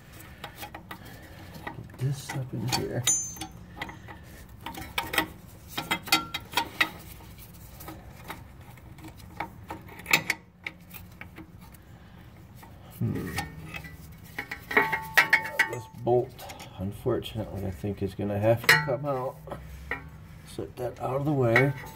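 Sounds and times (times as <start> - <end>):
metal rubbing: 18.6 - 21.9.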